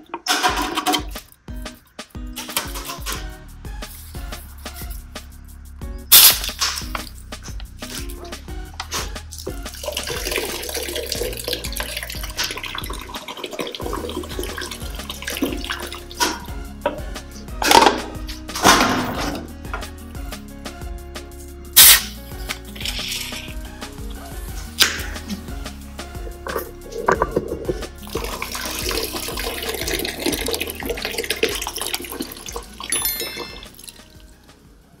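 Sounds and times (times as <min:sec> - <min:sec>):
soda can snapped open: 0:06.2 - 0:07.1, 0:21.8 - 0:22.2
soda pouring and fizzing: 0:09.3 - 0:16.6, 0:22.7 - 0:23.9, 0:26.1 - 0:34.3.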